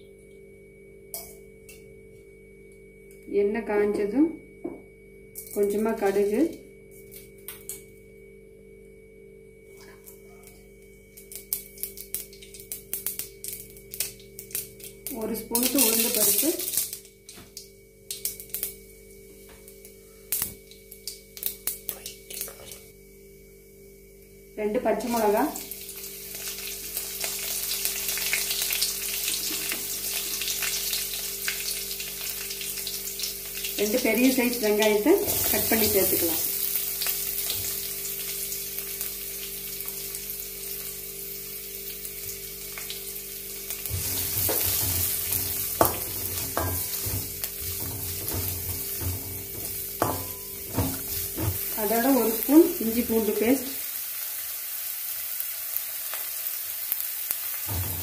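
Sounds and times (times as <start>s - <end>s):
seeds popping in hot oil: 11.2s - 22.9s, 25.0s - 40.9s, 41.9s - 53.8s
wooden spoon scraping a pan: 43.9s - 51.8s.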